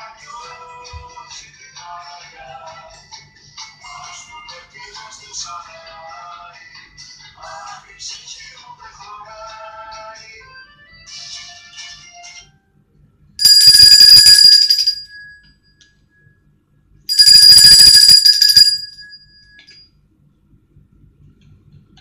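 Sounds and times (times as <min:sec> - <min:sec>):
alarm clock bell ringing: 0:13.4 - 0:15.5, 0:17.1 - 0:19.8.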